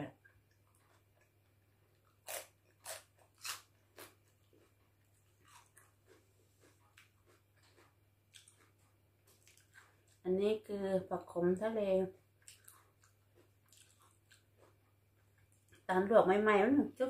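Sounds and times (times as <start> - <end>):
person crunching raw vegetable: 0.5 - 10.2, 12.4 - 15.8.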